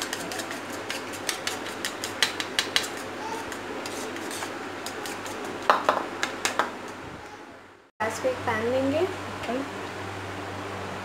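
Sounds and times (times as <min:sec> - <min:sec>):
utensil beating eggs in plastic bowl: 0:00.0 - 0:03.1.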